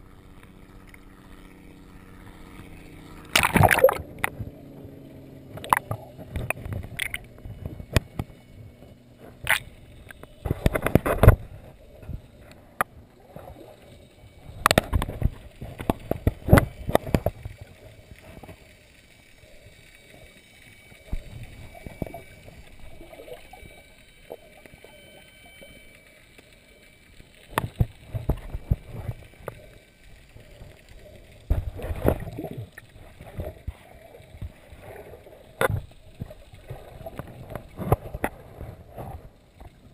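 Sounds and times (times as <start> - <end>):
muffled underwater swimming splashes: 3.2 - 8.3.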